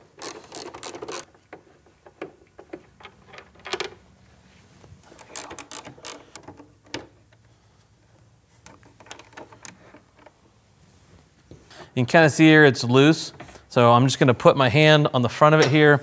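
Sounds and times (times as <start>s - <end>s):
hand ratchet clicking: 0.0s - 1.6s, 5.0s - 6.6s.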